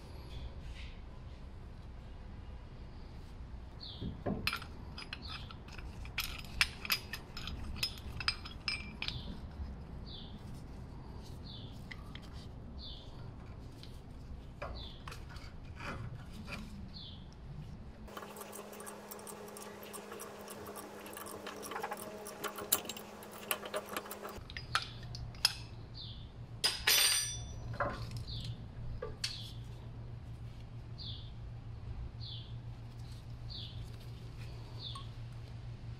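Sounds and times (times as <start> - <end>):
metal tools clinking: 4.4 - 9.5, 18.1 - 25.6, 26.6 - 28.1
fast ratchet clicking: 18.1 - 24.4.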